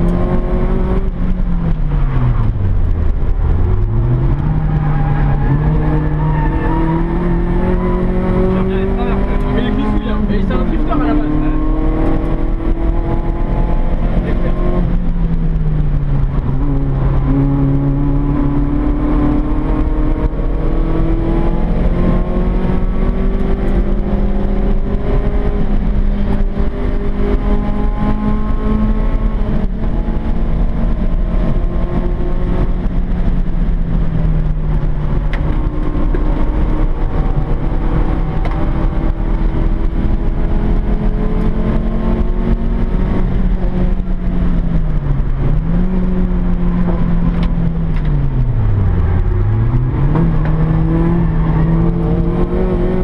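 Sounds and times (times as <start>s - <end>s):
car engine revving: 0.0s - 53.0s
road noise: 0.0s - 53.0s.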